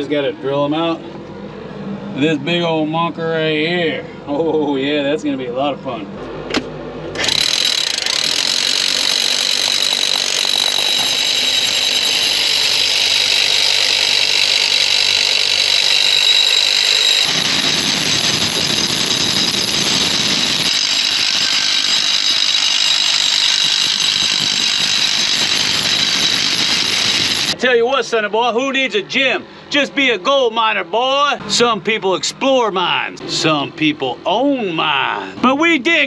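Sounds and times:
hammer drill boring into rock: 0:07.2 - 0:27.6.

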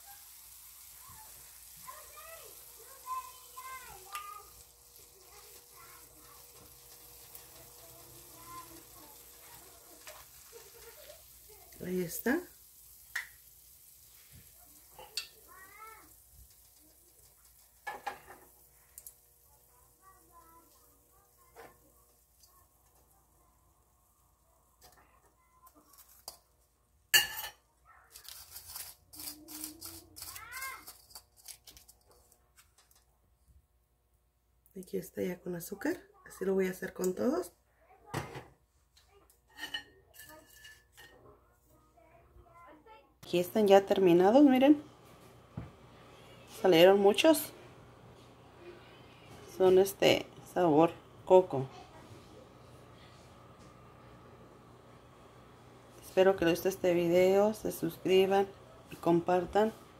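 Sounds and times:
batter sizzling in hot oil: 0:00.0 - 0:25.0, 0:25.6 - 0:26.4, 0:27.1 - 0:31.8, 0:43.2 - 0:59.9
crackling and rustling in sugar: 0:00.0 - 0:27.2, 0:27.8 - 0:33.1.

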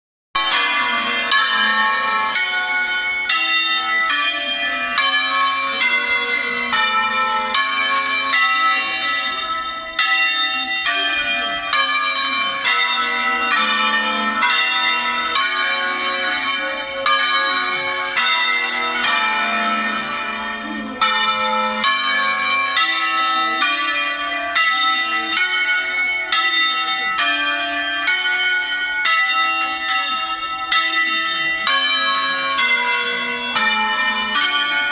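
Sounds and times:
church bells ringing: 0:00.4 - 0:34.9.

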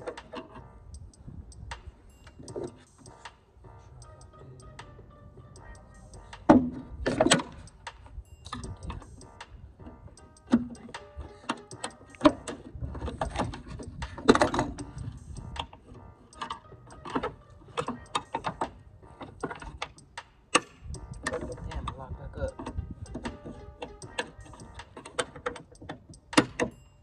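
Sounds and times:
metal parts clicking and knocking: 0:16.3 - 0:26.8.

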